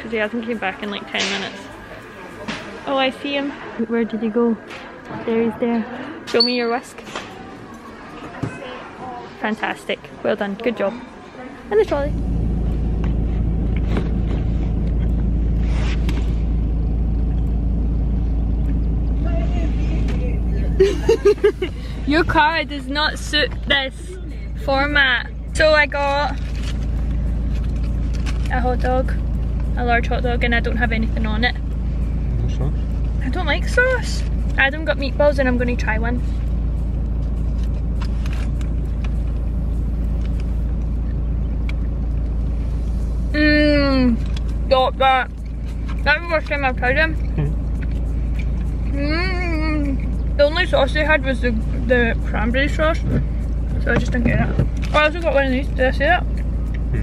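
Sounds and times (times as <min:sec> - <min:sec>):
car interior rumble: 0:11.7 - 0:57.0
chewing clicks: 0:40.0 - 0:42.4, 0:47.2 - 0:48.9, 0:56.3 - 0:57.0.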